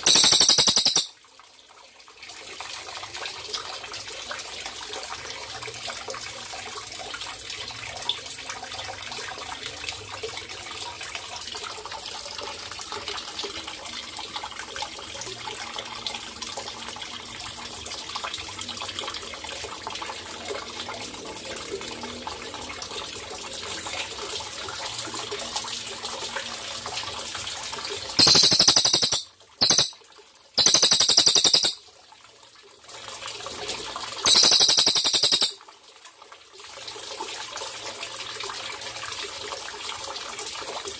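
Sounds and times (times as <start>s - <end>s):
songbird high-pitched trills: 0.0s - 1.1s, 28.2s - 30.0s, 30.6s - 31.8s, 34.3s - 35.6s
water trickling: 0.0s - 9.7s, 19.3s - 40.9s.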